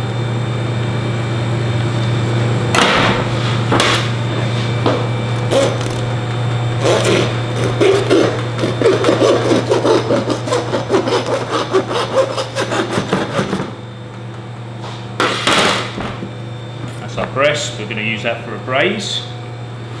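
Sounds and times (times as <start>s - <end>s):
steady low hum: 0.0s - 20.0s
saw rasping through bones: 5.5s - 6.0s, 6.8s - 13.8s.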